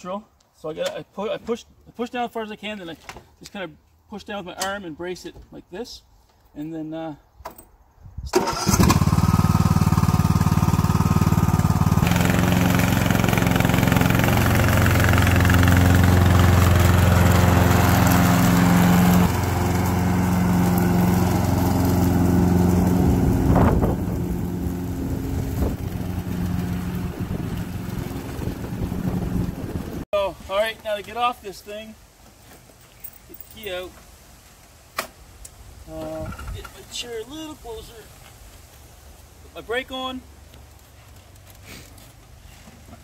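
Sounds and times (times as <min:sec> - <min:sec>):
lawn tractor engine drone: 0:08.4 - 0:30.0.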